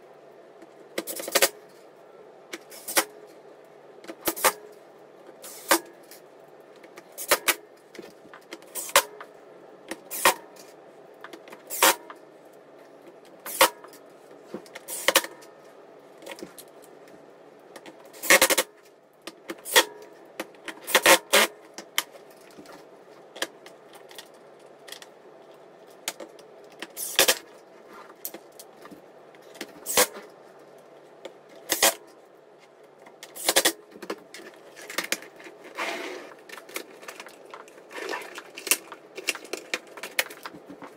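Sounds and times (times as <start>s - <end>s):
plastic and metal parts clacking: 32.6s - 40.9s.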